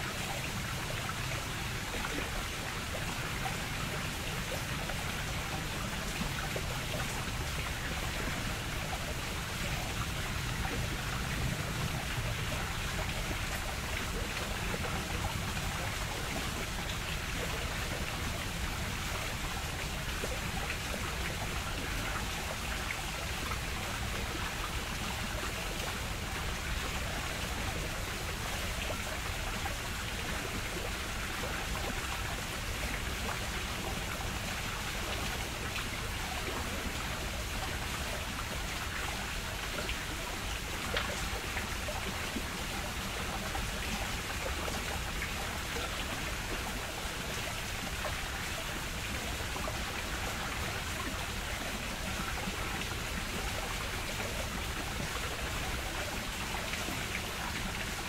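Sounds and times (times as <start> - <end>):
flowing water: 0.0 - 58.0.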